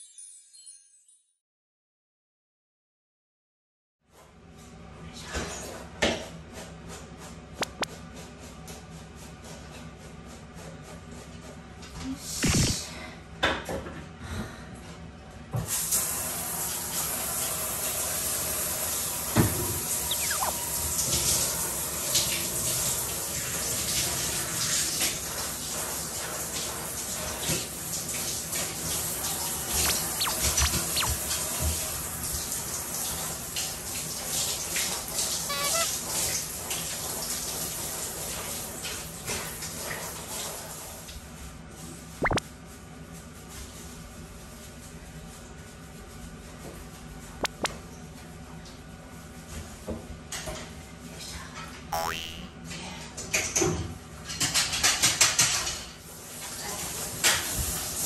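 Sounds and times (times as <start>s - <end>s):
shower spray hissing: 20.0s - 21.0s, 29.2s - 32.0s
short high-pitched squeak: 20.1s - 20.6s, 29.8s - 31.2s, 35.5s - 36.0s.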